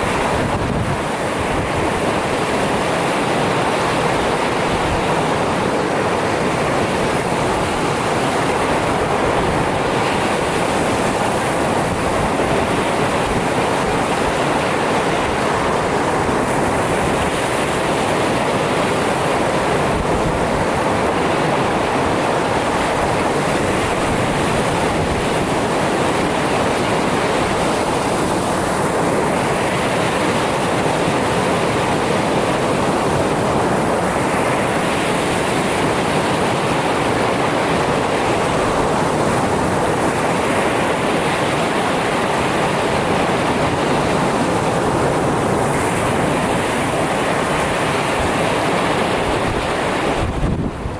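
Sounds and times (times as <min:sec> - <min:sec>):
waves washing on pebble beach: 0:00.0 - 0:50.9.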